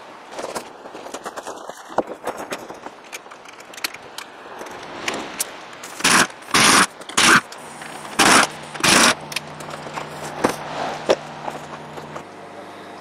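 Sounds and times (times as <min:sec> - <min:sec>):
hand tools clicking and knocking: 0:02.0 - 0:12.3.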